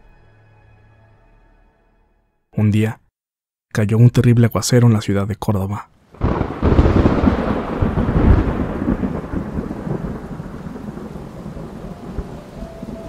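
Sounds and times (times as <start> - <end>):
heavy rain: 6.0 - 13.0
thunder rumbling: 6.1 - 13.0.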